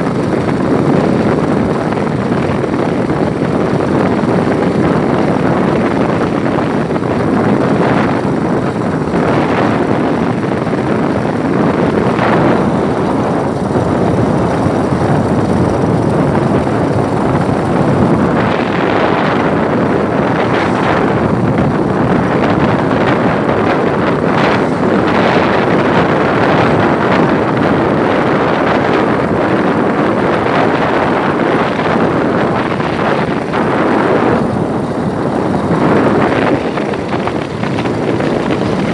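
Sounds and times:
road and engine noise: 0.0s - 38.9s
wind rushing over microphone: 0.0s - 38.9s.

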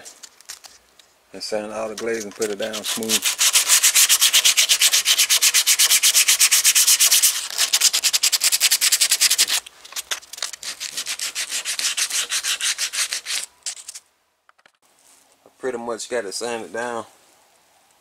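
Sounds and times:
sandpaper scraping strokes: 1.8s - 14.0s.

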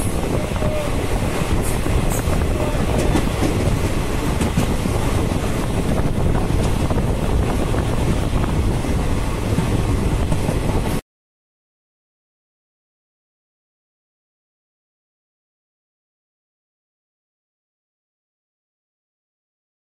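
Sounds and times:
vehicle rumble and wind rush: 0.0s - 11.0s.

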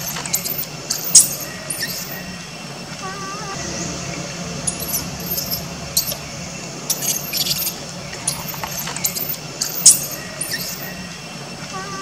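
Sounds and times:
baby monkey squealing: 0.0s - 2.4s, 4.7s - 6.2s, 6.9s - 11.1s.

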